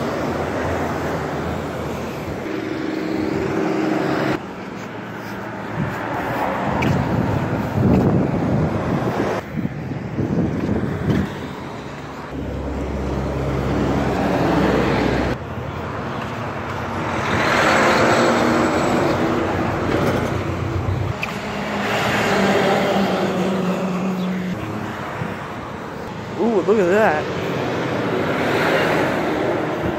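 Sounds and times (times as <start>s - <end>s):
vehicles driving past: 0.0s - 29.9s
truck engine passing: 11.4s - 29.9s.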